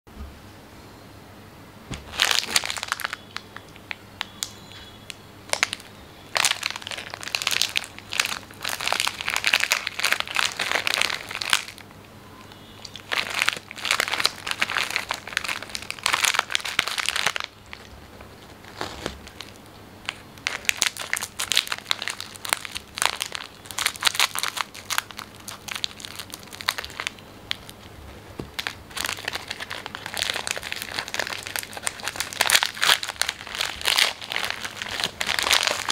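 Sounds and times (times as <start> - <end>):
plastic wrapper crinkling: 1.9 - 12.0, 12.8 - 35.9.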